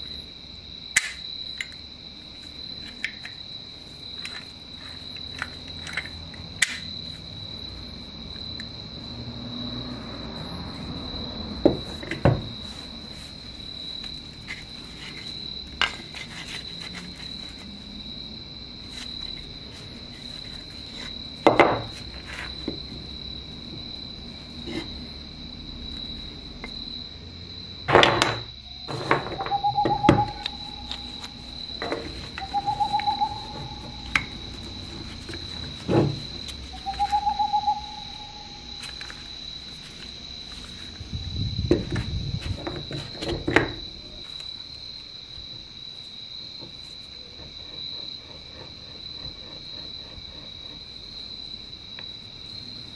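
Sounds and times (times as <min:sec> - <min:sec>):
thin high trill: 0:29.4 - 0:35.0, 0:36.7 - 0:39.0.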